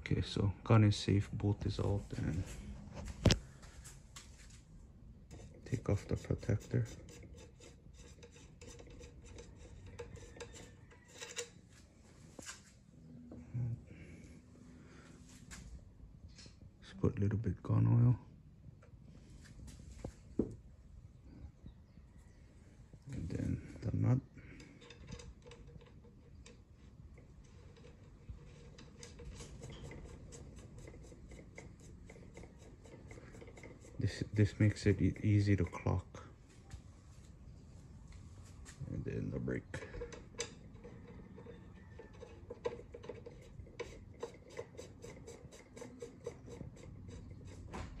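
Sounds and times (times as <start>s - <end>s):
threads rubbing: 5.3s - 11.6s, 23.0s - 35.8s, 38.1s - 48.0s.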